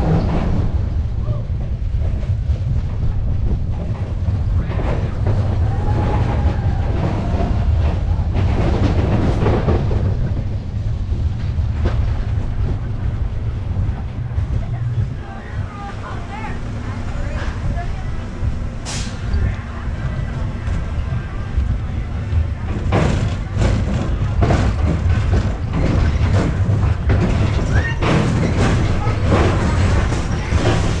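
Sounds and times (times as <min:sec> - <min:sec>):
roller coaster rumble: 0:00.0 - 0:31.0
wheels clacking and knocking: 0:00.0 - 0:31.0
wind buffeting microphone: 0:00.0 - 0:31.0
rattling clatter: 0:16.5 - 0:31.0.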